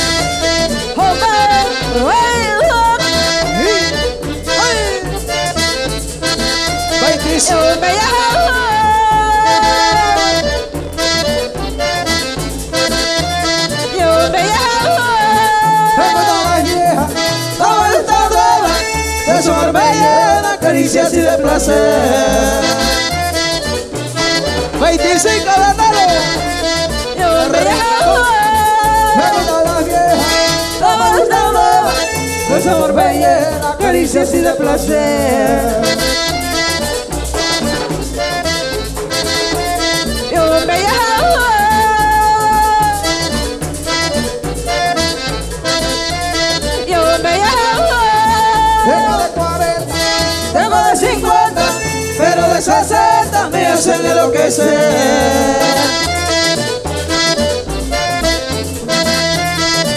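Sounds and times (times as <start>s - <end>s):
bass and electric guitar: 0.0s - 59.9s
button accordion: 0.0s - 59.9s
congas: 0.0s - 59.9s
woman singing: 1.0s - 3.8s, 4.6s - 5.1s, 7.3s - 10.4s, 13.9s - 17.0s, 17.6s - 23.1s, 27.1s - 36.2s, 40.3s - 43.4s, 46.8s - 49.8s, 50.5s - 56.1s.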